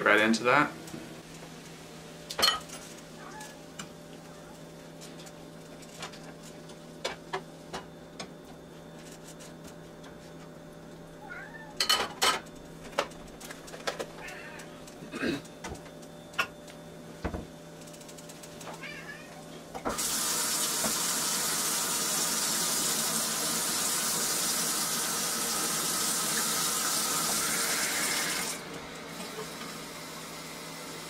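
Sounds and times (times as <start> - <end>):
kitchen tap running: 19.9 - 31.0.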